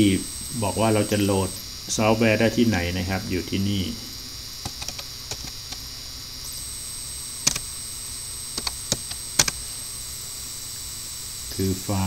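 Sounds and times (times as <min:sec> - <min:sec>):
electrical hum and hiss: 0:00.0 - 0:12.0
keyboard keys clicking: 0:04.7 - 0:05.5, 0:07.4 - 0:07.6, 0:08.6 - 0:09.6.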